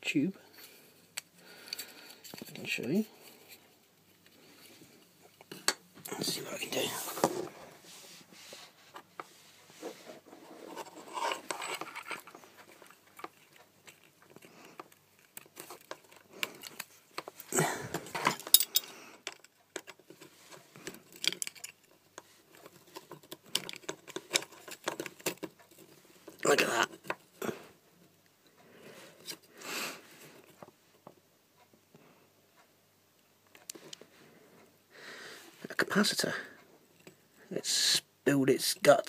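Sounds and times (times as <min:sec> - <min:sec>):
plastic parts clicking and scraping: 0:01.1 - 0:04.7, 0:08.9 - 0:27.5.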